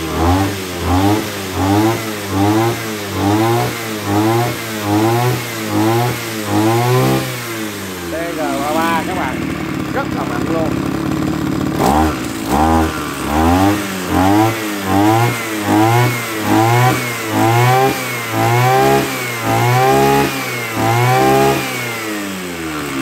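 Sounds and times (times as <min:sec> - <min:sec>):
brush cutter engine revving: 0:00.0 - 0:23.0.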